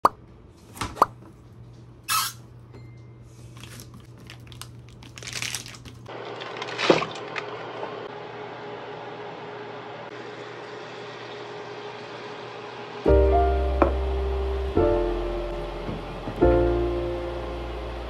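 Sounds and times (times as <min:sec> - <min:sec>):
plastic packet crinkling: 0:03.5 - 0:07.4
steady hum: 0:08.0 - 0:18.0.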